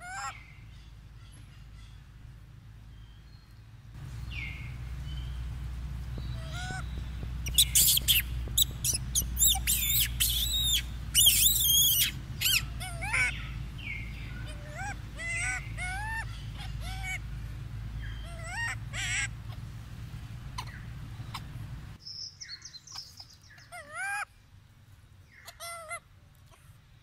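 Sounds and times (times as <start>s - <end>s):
low steady rumble: 0.0s - 25.4s
high-pitched animal calls: 6.3s - 13.6s, 14.2s - 17.2s, 18.1s - 19.6s.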